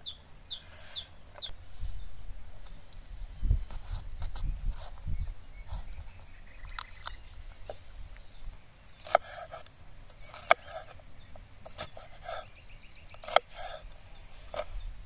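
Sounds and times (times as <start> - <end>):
knife crunching through pepper: 8.9 - 11.0, 13.2 - 13.8.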